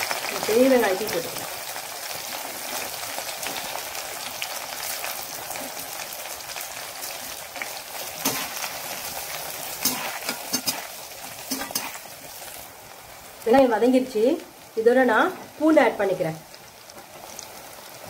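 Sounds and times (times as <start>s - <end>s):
onions sizzling in oil: 0.0s - 18.0s
metal spatula scraping pan: 8.2s - 8.8s, 9.8s - 12.1s.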